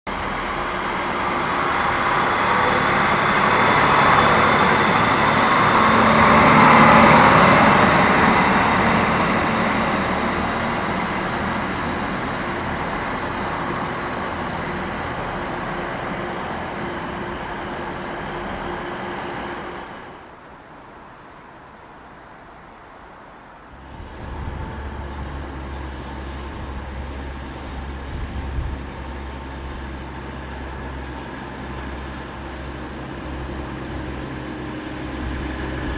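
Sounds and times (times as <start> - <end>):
diesel railcar passing: 0.1 - 35.9
brief hiss: 4.2 - 6.2.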